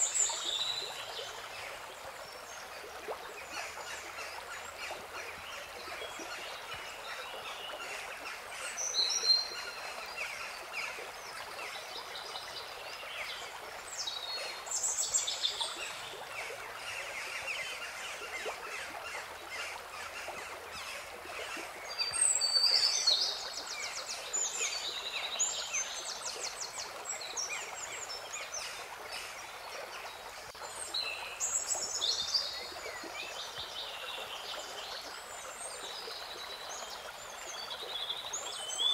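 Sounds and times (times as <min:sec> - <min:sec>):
running water rushing: 0:00.0 - 0:38.9.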